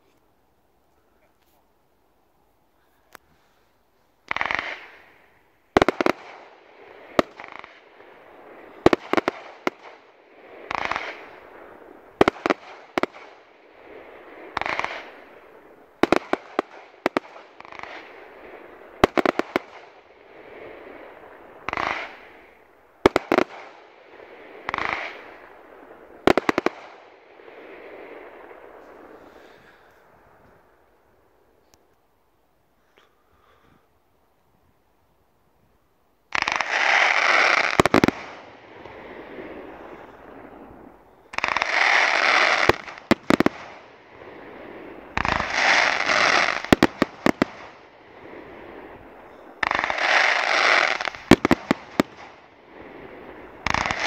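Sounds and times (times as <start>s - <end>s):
firework bursts with sharp bangs: 3.1s - 31.3s, 36.3s - 54.0s
firework shots hissing: 36.3s - 40.5s, 41.3s - 54.0s.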